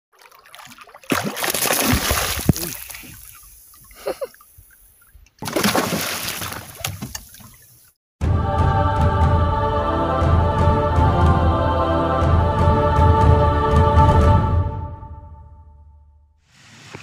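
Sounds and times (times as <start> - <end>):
fish splashing in water: 0.1 - 7.9
music: 8.2 - 16.4.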